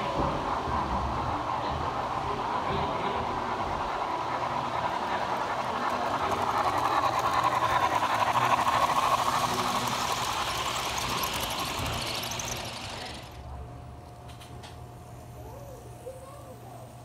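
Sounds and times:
wheels clicking over rails: 0.0s - 14.8s
model train rolling on track: 0.0s - 17.0s.

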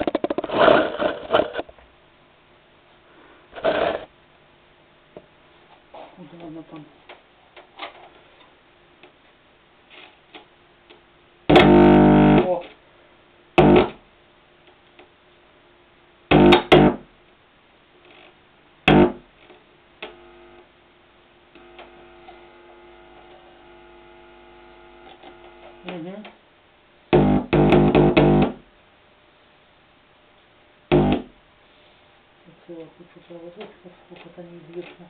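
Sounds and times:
speaker buzzing bursts: 11.5s - 12.6s, 13.5s - 14.1s, 16.3s - 17.2s, 18.1s - 20.8s, 21.4s - 26.1s, 27.1s - 28.7s, 30.9s - 31.4s.

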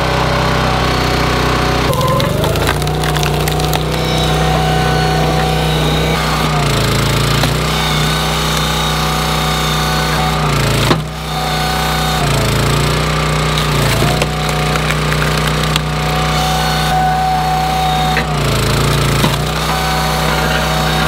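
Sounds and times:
log splitter engine running: 0.0s - 21.0s
wood cracking: 1.9s - 6.0s, 13.4s - 16.0s.

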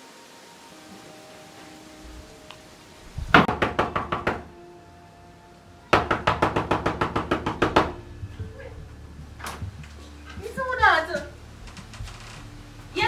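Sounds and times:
fist pounding on a wooden door: 3.3s - 4.5s, 6.0s - 8.5s.

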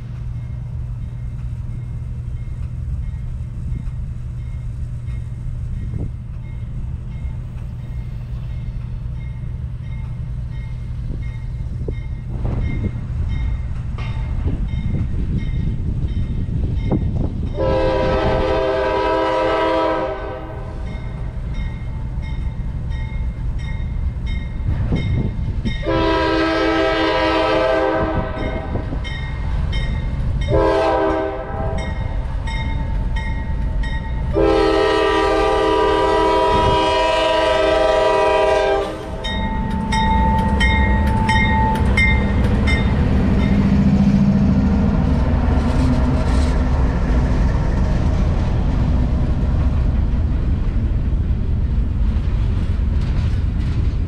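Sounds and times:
wheels clicking on rail: 0.0s - 17.6s, 28.3s - 54.0s
locomotive air horn blasts: 17.6s - 21.0s, 25.8s - 28.9s, 30.5s - 32.1s, 34.3s - 39.4s
crossing bell ringing: 20.8s - 26.3s, 28.3s - 34.5s, 39.0s - 43.8s.

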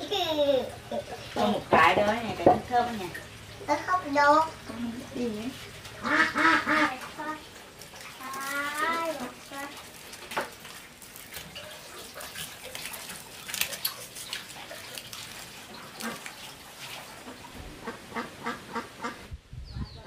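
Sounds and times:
birds calling rapidly: 14.1s - 20.0s.

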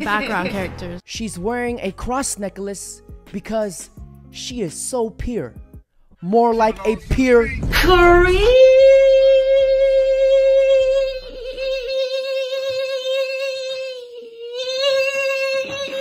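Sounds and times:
person singing a long note: 7.9s - 16.0s.

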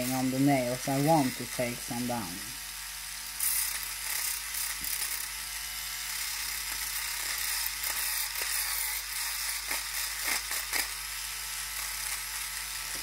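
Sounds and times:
electric nail file humming: 0.0s - 13.0s
nail file rasping on fingernail: 7.0s - 11.0s.

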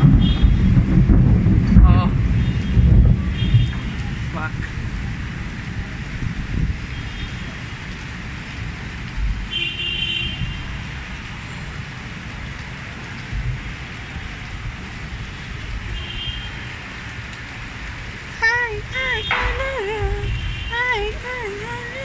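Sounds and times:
wind rumble on microphone: 0.0s - 9.6s, 10.2s - 22.0s
distant road traffic: 19.2s - 22.0s.

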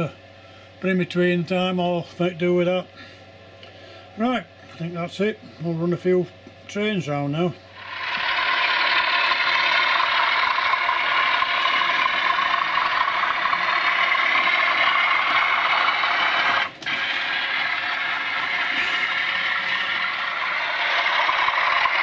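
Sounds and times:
model train motor whir: 7.8s - 22.0s
wheels clattering on track: 7.8s - 22.0s.

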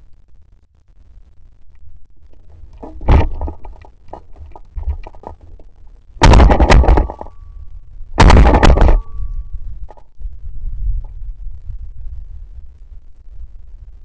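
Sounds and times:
shotgun shots: 6.2s - 7.4s, 8.2s - 9.3s.

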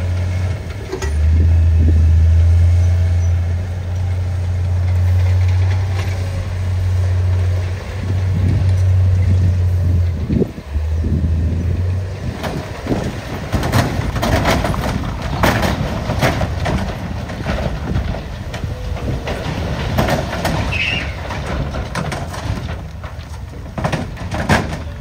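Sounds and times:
truck engine rumble: 0.0s - 25.0s
rocks clattering: 12.2s - 25.0s.

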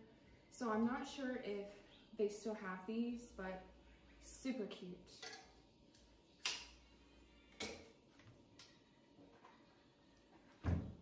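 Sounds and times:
cabinet door opening: 10.6s - 11.0s.

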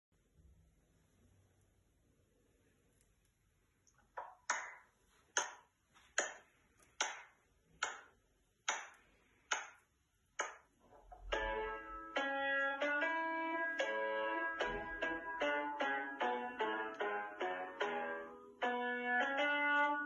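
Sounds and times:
sustained accompaniment chords: 11.3s - 19.4s.

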